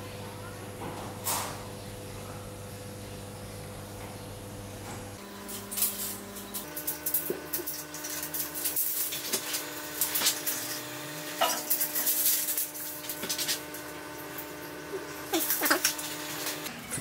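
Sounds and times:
hard objects clattering and scraping: 0:05.4 - 0:17.0.

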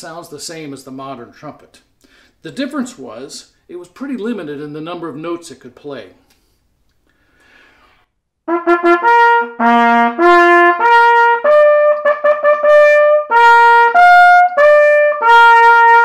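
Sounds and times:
natural trumpet fanfare: 0:08.5 - 0:16.0.

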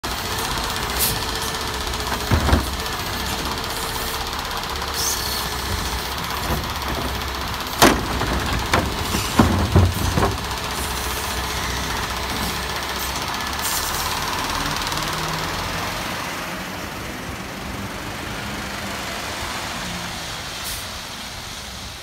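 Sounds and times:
garbage truck engine running: 0:00.0 - 0:18.1
loader arm knocking on cart: 0:00.3 - 0:13.6
loud bang of cart tipping: 0:05.2 - 0:12.7.

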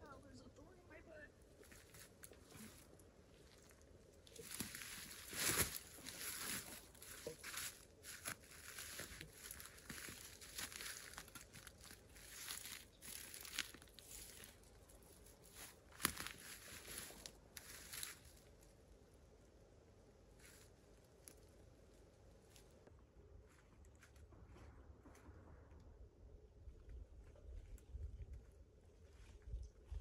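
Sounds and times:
leaves and stems rustling: 0:01.6 - 0:18.7
twigs snapping: 0:01.7 - 0:18.4.

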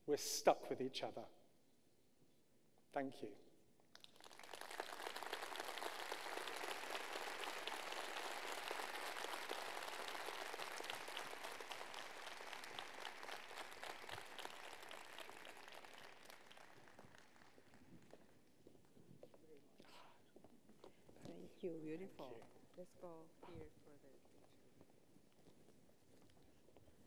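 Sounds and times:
audience clapping: 0:04.0 - 0:18.6.

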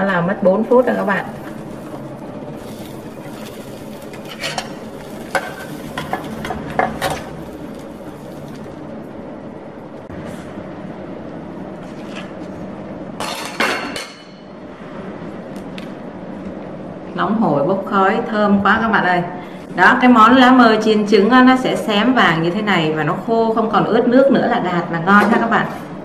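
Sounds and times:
utensils clinking on frying pan: 0:04.2 - 0:07.4.

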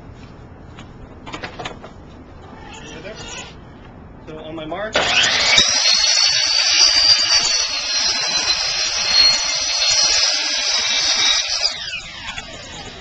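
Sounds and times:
miter saw cutting floorboard: 0:05.0 - 0:13.0.

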